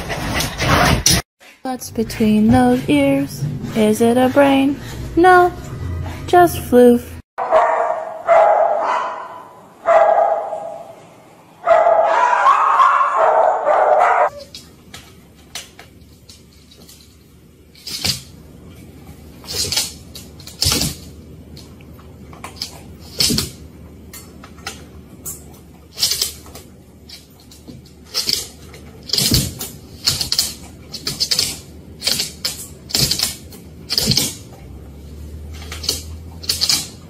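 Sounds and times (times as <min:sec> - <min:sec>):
dog howling: 0:11.9 - 0:14.4.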